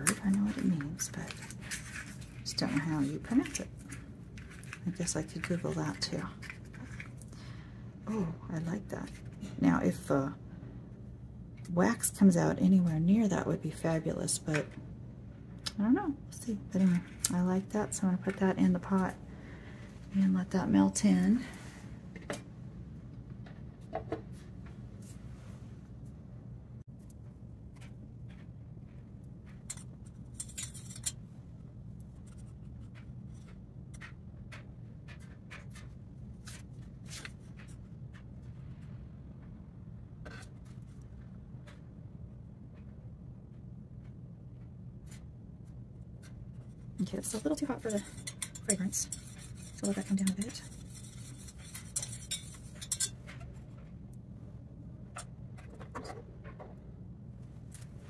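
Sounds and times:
steady low hum: 0:00.0 - 0:58.0
thermometer clinking on metal pot: 0:47.0 - 0:53.2.

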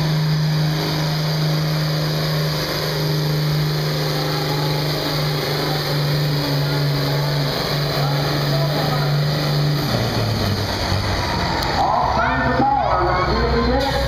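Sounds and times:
tractor engine under heavy load: 0:00.0 - 0:14.0.

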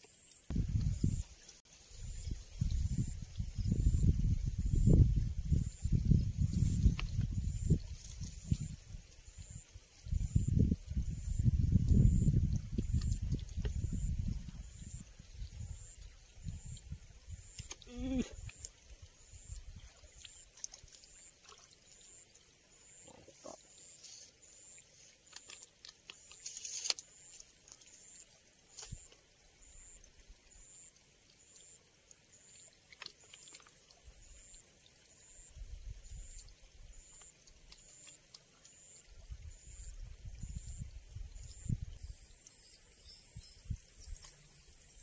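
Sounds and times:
wind rumble on microphone: 0:00.5 - 0:18.6, 0:35.5 - 0:36.9, 0:39.1 - 0:42.4, 0:43.0 - 0:45.0
insects trilling: 0:01.9 - 0:45.0.

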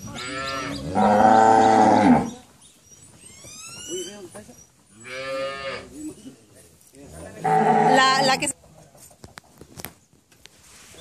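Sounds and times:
cattle mooing: 0:00.1 - 0:02.4, 0:07.3 - 0:08.4.

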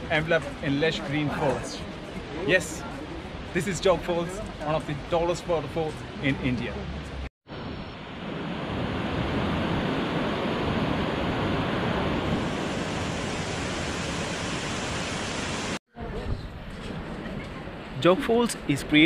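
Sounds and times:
faint outdoor noise: 0:00.0 - 0:08.6
waterfall rushing: 0:09.4 - 0:15.8.

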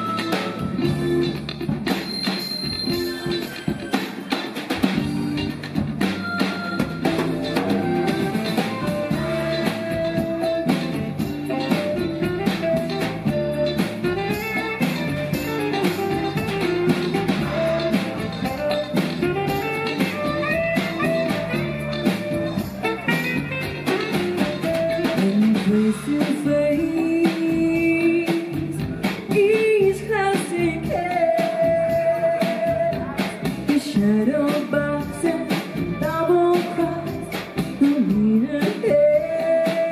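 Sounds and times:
drum kit beat: 0:00.0 - 0:39.9
person singing: 0:25.1 - 0:39.9.

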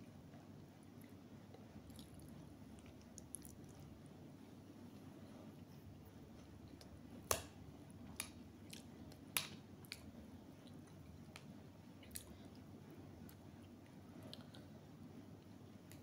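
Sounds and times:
person chewing: 0:01.9 - 0:03.8.

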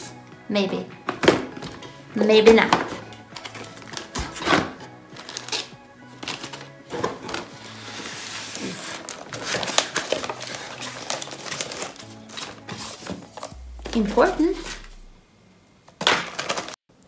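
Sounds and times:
background music: 0:00.0 - 0:15.3
plastic bag crinkling: 0:08.9 - 0:12.6.

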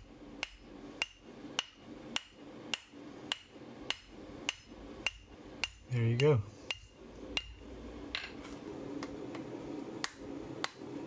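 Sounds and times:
hammer striking hot steel on anvil: 0:00.4 - 0:07.6.

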